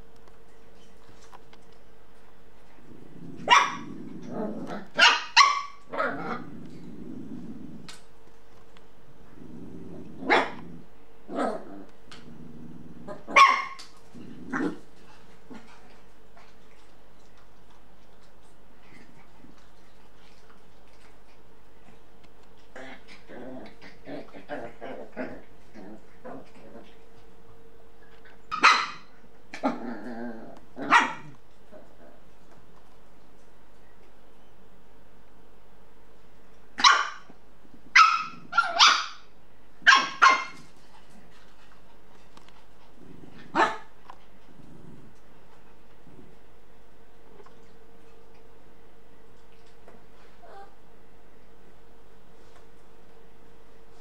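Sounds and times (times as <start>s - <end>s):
dog growling: 2.8s - 5.0s, 5.8s - 8.1s, 9.2s - 13.4s, 14.1s - 16.0s, 22.6s - 27.4s, 29.5s - 32.3s, 42.8s - 45.3s
dog barking: 3.5s - 3.9s, 5.0s - 5.8s, 13.3s - 13.8s, 28.5s - 29.0s, 30.8s - 31.3s, 36.8s - 37.2s, 38.0s - 39.2s, 39.8s - 40.6s, 43.5s - 43.9s.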